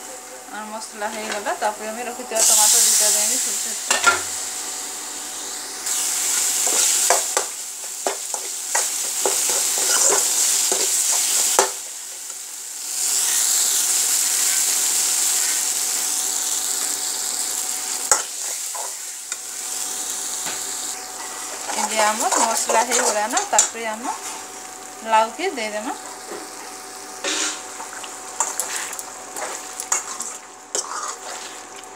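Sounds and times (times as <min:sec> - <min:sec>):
tomatoes sizzling in oil: 0:00.0 - 0:31.9
steel spoon scraping a pan: 0:08.3 - 0:11.4, 0:21.2 - 0:24.5, 0:28.4 - 0:31.7.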